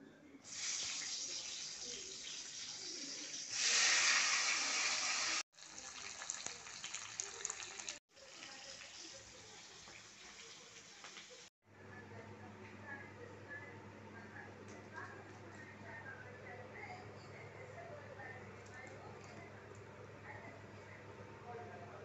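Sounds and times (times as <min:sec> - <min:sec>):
vegetables sizzling in a pan: 0:00.5 - 0:11.5.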